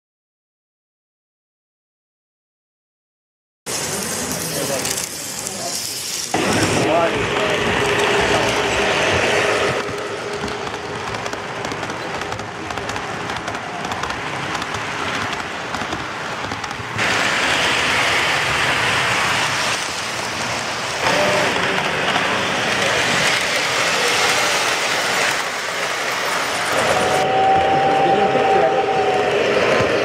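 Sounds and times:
model trains rumbling and clattering: 3.7 - 27.6.

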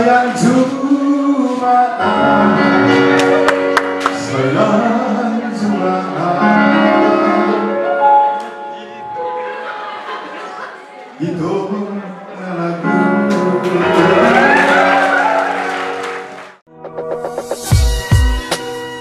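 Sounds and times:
man singing through microphone: 0.0 - 3.1, 4.2 - 7.7, 11.2 - 14.8.

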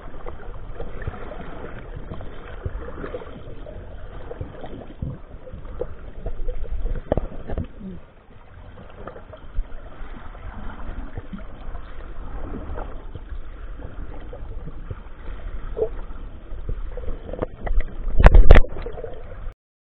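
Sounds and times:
underwater low rumble: 0.0 - 19.6
small underwater knocks: 4.2 - 7.8, 16.6 - 19.0.

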